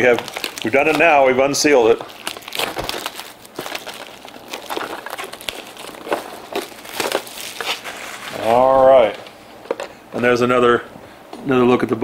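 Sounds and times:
plastic wrap crinkling: 0.0 - 9.9.

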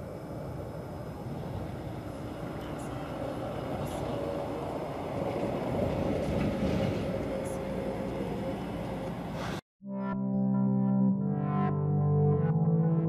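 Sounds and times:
distant engine rumble: 0.0 - 9.6.

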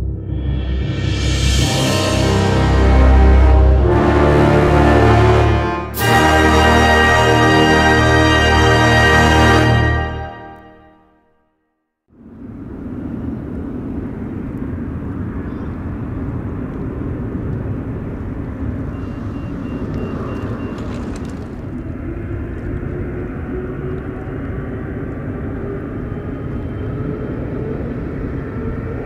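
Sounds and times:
jet engine whine: 0.0 - 4.2, 12.2 - 29.0
distant jet engines rumbling: 12.2 - 29.0.

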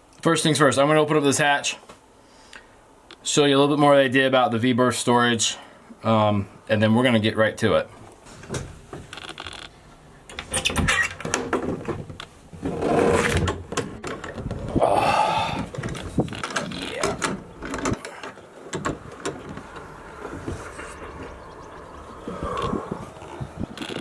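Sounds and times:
latch clicks and rattles: 10.3 - 12.3, 13.2 - 14.7, 15.7 - 20.0
hatch scraping: 15.9 - 24.0.

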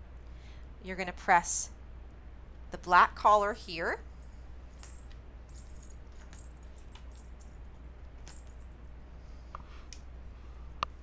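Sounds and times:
low steady hum: 0.0 - 11.0
metal collar hardware clinking: 4.2 - 9.0.

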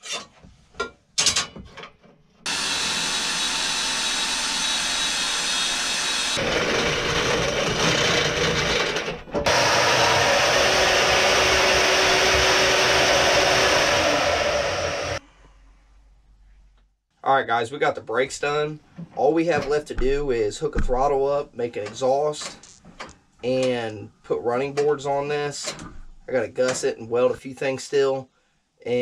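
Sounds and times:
clicks of handling metal: 0.0 - 2.2
bandsaw cutting steel: 2.5 - 15.2
power tools cutting steel: 2.5 - 15.2.

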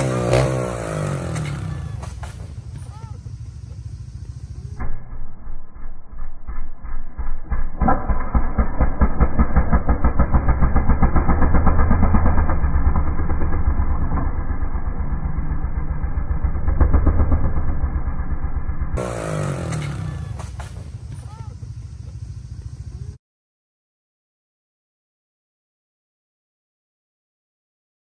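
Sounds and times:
motorcycle engine pulsing: 0.0 - 23.2
outdoor background: 0.0 - 23.2
motorcycle tumbling on rocks: 1.1 - 3.9, 19.4 - 22.3.

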